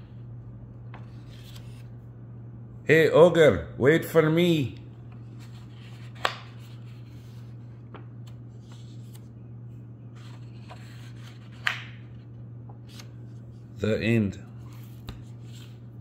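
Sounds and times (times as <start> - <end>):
steady low hum: 0.0 - 16.0
paper page slap: 6.1 - 6.5, 11.5 - 12.0.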